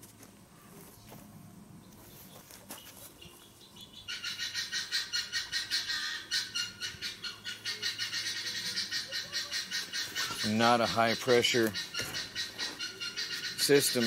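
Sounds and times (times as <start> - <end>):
animal pulsing trill call: 3.8 - 14.0.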